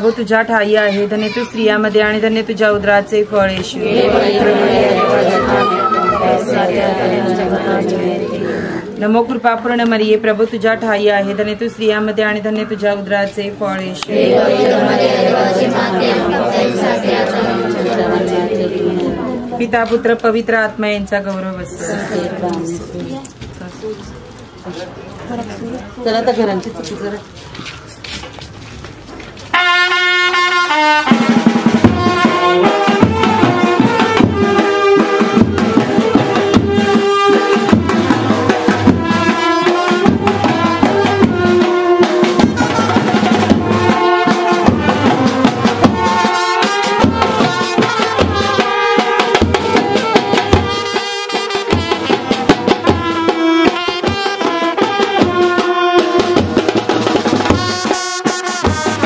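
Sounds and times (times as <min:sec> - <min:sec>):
brass band playing: 0:03.8 - 0:08.8, 0:14.1 - 0:19.6, 0:29.5 - 0:59.0.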